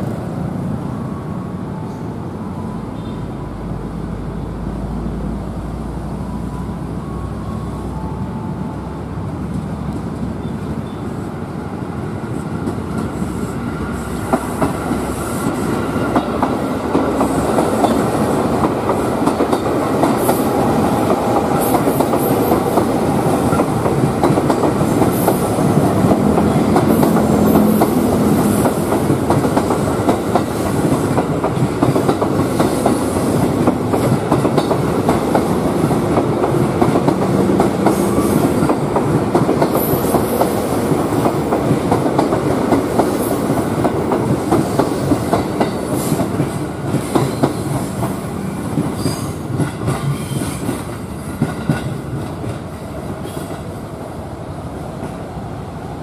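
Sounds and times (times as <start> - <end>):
train rumble: 0.0 - 56.0.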